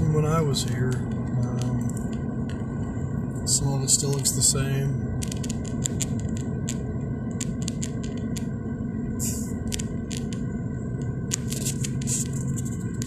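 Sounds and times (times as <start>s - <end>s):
car road and engine rumble: 0.0s - 13.0s
short hiss: 9.2s - 9.5s.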